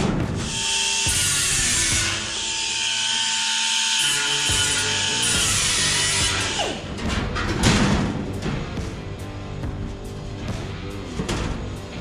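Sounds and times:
background music with drum beat: 0.0 - 2.4, 4.5 - 12.0
pneumatic cutoff tool cutting steel: 0.4 - 7.0.

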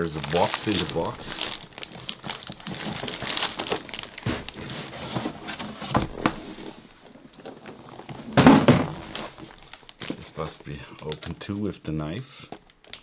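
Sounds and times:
cardboard box scraping: 4.2 - 6.8
box bump: 8.3 - 9.2.

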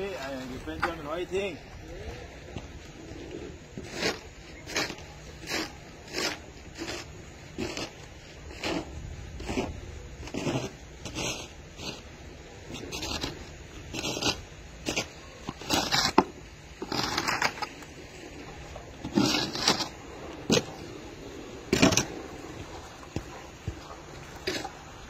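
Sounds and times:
scraping and crunching in snow: 0.0 - 25.0.

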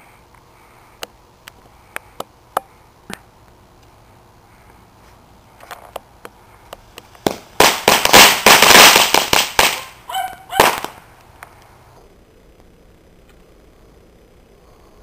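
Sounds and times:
firecracker bangs crackling: 7.0 - 11.1.

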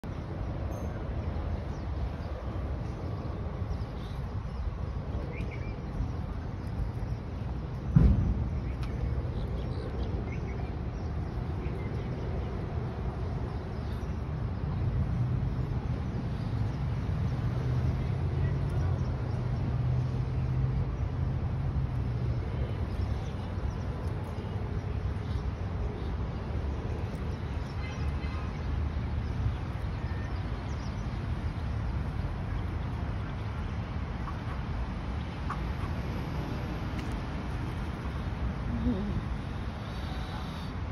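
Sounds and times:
low outdoor rumble: 0.0 - 40.9
vehicle engine hum: 0.0 - 40.9.

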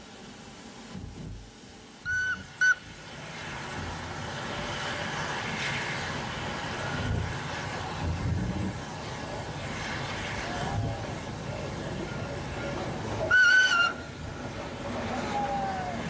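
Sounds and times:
steam train running: 0.0 - 16.0
steam locomotive whistle: 2.0 - 2.9, 13.2 - 14.2.

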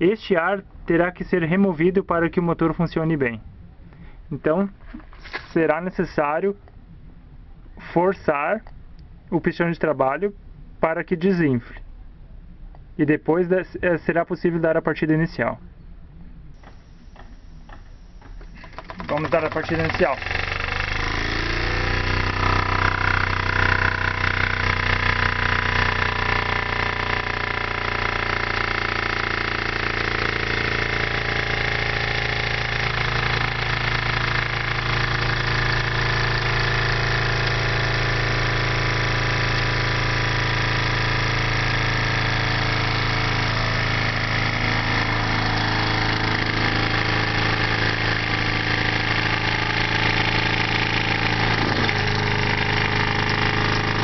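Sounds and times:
small engine mechanical hum: 16.0 - 54.0.

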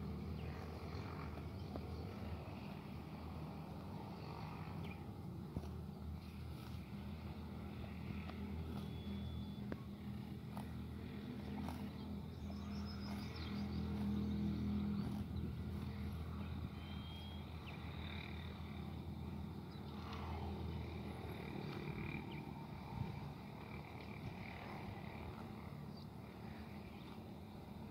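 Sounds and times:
low machine hum: 0.0 - 27.9
faint bird chirps: 16.7 - 17.9.

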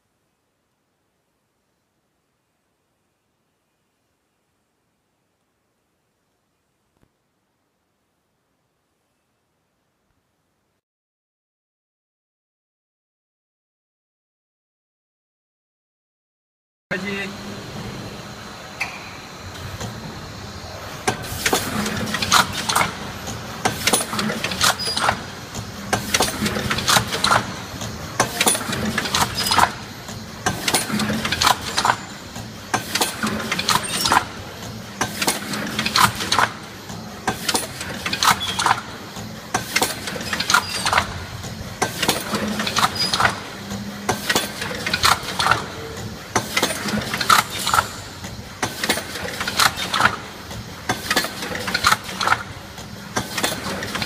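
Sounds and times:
machine clacking and clicking: 21.0 - 54.0.

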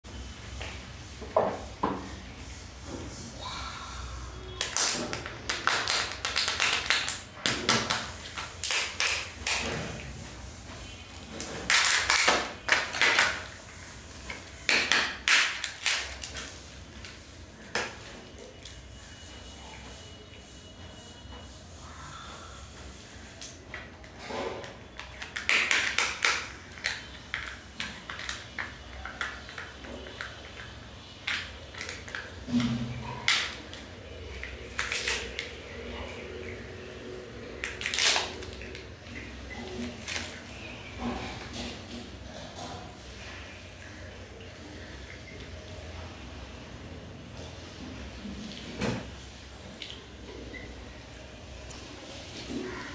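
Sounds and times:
foil wrapper crinkling and tearing: 4.6 - 9.6, 14.8 - 17.2, 34.6 - 35.6, 37.6 - 38.9.

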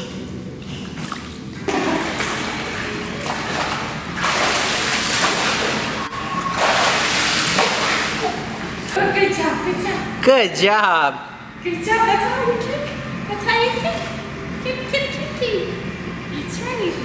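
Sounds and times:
pool water splashing: 0.0 - 9.0.

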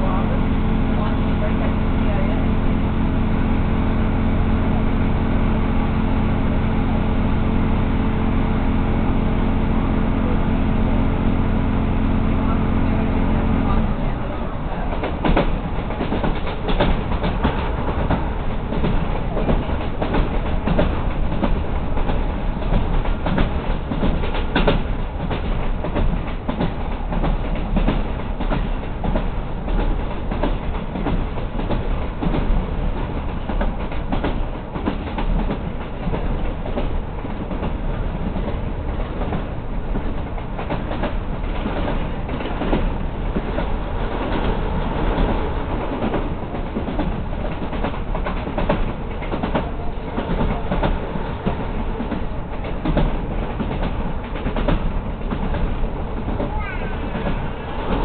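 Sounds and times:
train rumbling: 0.0 - 58.0
wheels clicking on rails: 13.6 - 58.0.

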